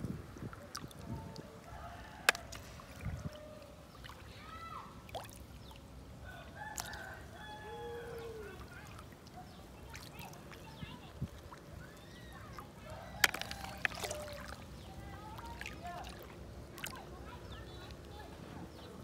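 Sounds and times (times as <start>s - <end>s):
roosters crowing: 6.2s - 8.6s.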